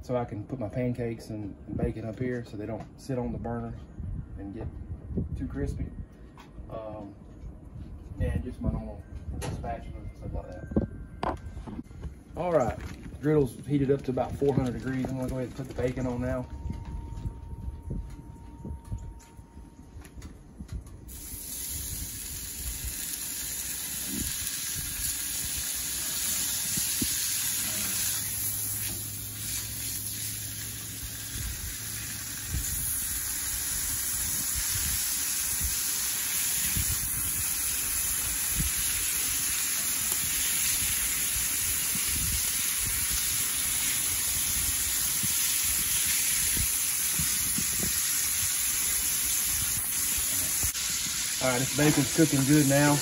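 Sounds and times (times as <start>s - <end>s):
bacon sizzling on a griddle: 21.1s - 53.0s.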